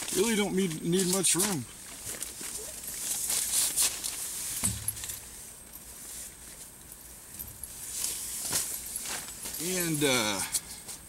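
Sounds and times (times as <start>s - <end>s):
tent fabric rustling: 1.8s - 6.7s, 7.7s - 10.0s
soft low thud: 4.6s - 5.2s.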